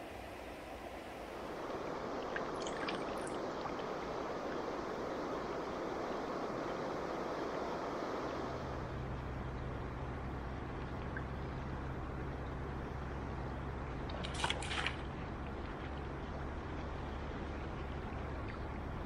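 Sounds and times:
river water rushing: 0.0s - 8.7s, 14.0s - 19.0s.

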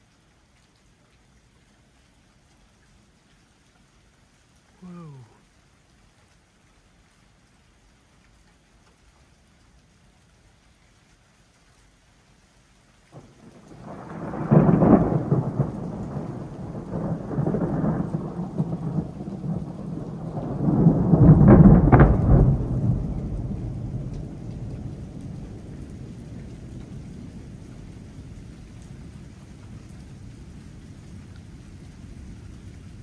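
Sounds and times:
thunder rumbling: 13.1s - 33.0s.

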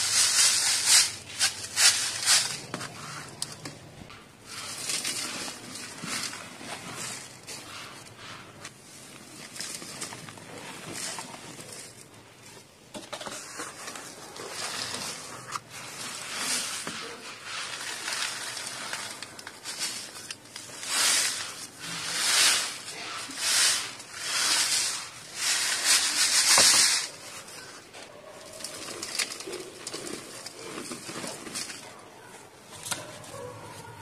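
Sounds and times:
dirt rushing across shaken sieve: 0.0s - 3.6s, 4.4s - 12.1s, 13.2s - 27.9s
dirt pouring into plastic tub: 13.2s - 27.8s.

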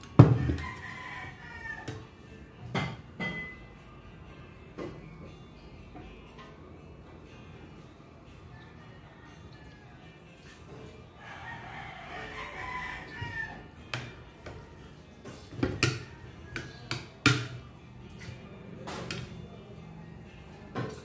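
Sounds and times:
rooster crowing: 0.4s - 2.0s, 11.2s - 13.7s
cutlery clinking on a plate: 2.7s - 3.6s.

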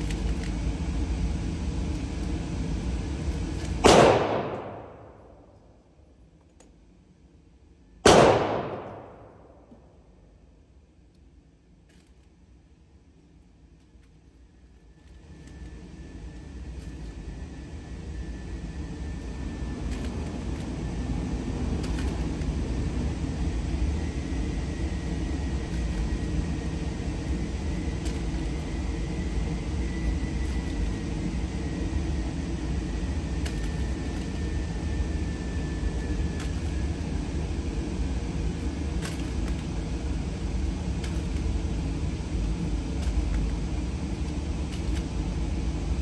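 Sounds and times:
low rumbling noise: 0.0s - 6.1s, 8.0s - 10.5s.

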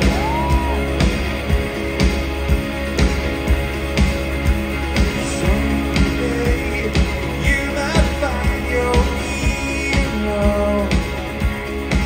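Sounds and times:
drum beat: 0.0s - 12.0s
electric guitar: 0.0s - 12.0s
man singing lead vocal: 5.1s - 11.4s.

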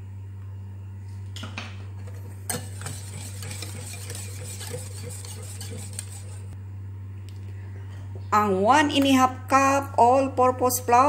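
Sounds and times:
steady low hum: 0.0s - 11.0s
whisk beating batter in bowl: 2.5s - 6.6s.

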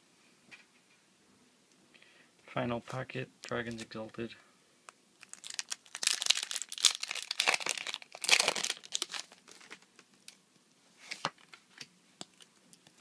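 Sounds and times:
foil wrapper crinkling and tearing: 5.2s - 10.0s.

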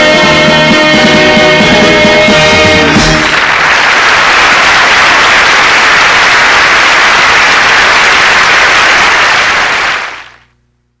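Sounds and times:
audience applause: 2.6s - 10.4s.

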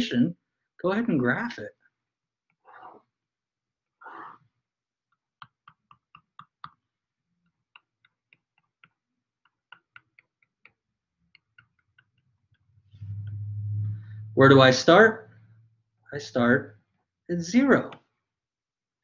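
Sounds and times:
pen stylus clicking on tablet: 5.4s - 6.8s
soft swish: 13.0s - 15.6s.

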